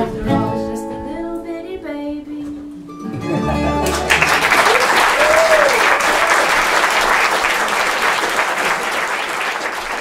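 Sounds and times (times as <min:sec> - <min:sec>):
audience applauding: 0:03.8 - 0:10.0
person whooping: 0:04.6 - 0:06.5.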